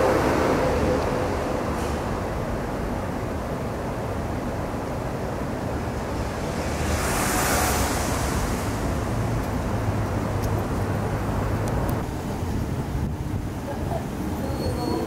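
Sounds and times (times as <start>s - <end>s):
distant city traffic: 0.0s - 15.0s
rushing hiss: 6.2s - 9.3s.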